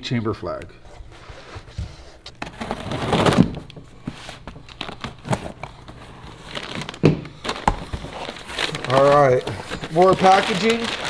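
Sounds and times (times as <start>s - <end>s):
cardboard box scraping: 1.2s - 4.4s.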